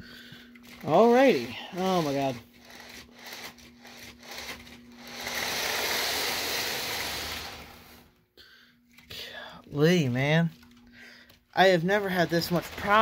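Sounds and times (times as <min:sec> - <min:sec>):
model train rolling on track: 0:00.8 - 0:08.0, 0:11.7 - 0:13.0.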